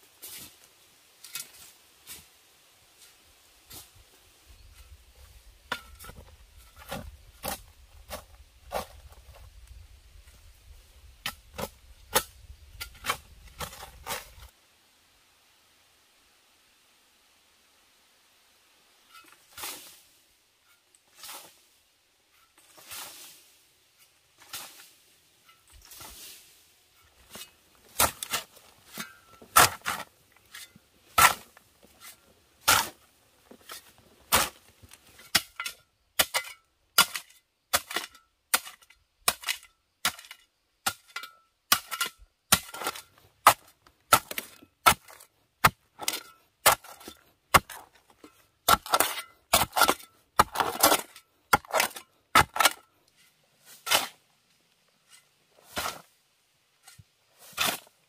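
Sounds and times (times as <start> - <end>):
digging tool striking stony clay: 5.7 - 9.1, 11.2 - 14.5, 27.3 - 33.0, 33.6 - 52.9.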